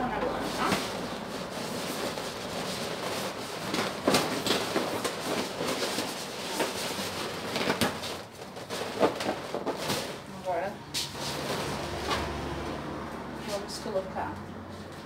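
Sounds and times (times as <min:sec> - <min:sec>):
balloons rubbing and bumping: 0:00.0 - 0:10.3.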